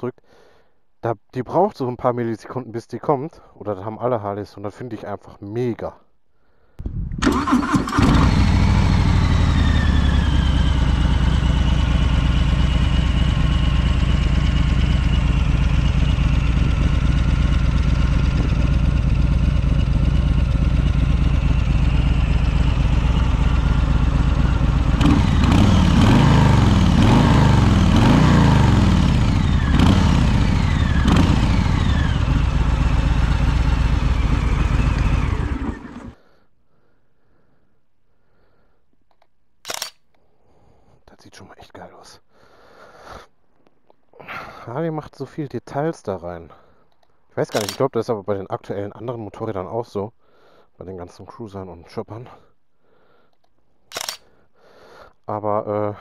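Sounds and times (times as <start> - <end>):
motorcycle engine revving: 7.2 - 36.2
motorcycle engine idling: 7.3 - 36.2.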